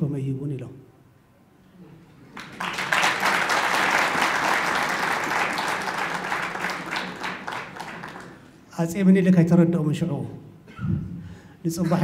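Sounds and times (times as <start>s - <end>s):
audience clapping: 2.3s - 8.6s.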